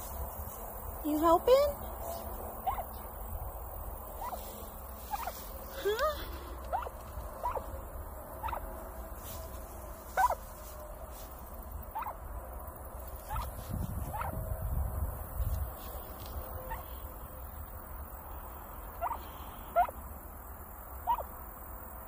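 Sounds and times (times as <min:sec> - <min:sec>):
turkey hen chirping softly: 0:02.1 - 0:03.2, 0:04.1 - 0:07.7, 0:08.4 - 0:08.7, 0:10.1 - 0:10.5, 0:11.9 - 0:12.2, 0:13.3 - 0:14.4, 0:16.4 - 0:17.7, 0:18.8 - 0:20.0, 0:21.0 - 0:21.5.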